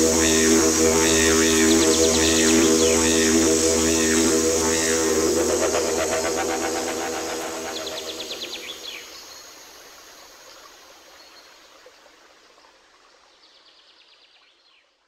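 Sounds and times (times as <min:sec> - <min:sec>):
rapid high chirping trill: 0:00.0 - 0:09.0
soft hissing ambience: 0:00.0 - 0:13.2.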